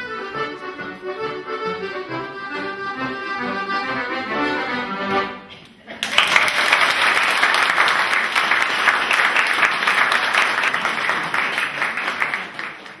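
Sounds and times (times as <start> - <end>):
audience applauding: 5.9 - 13.0.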